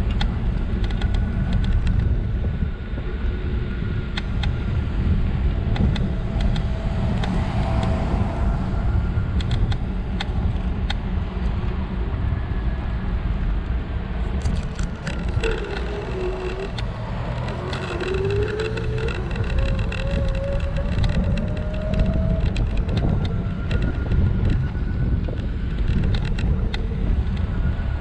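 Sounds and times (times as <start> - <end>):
small clicks and rattles: 0.0 - 2.1, 14.4 - 27.5
wind on microphone: 0.0 - 28.0
scooter rumbling over asphalt: 13.6 - 28.0
tyre noise: 14.4 - 23.2.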